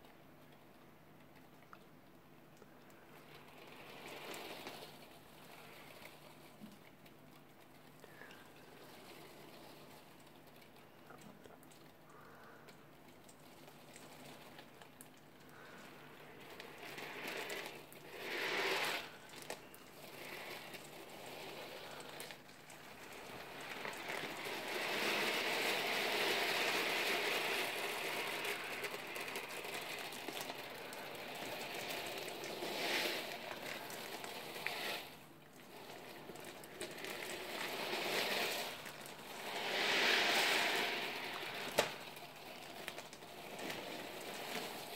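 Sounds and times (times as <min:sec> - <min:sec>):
steel ball bearings rattling: 0:13.0 - 0:44.9.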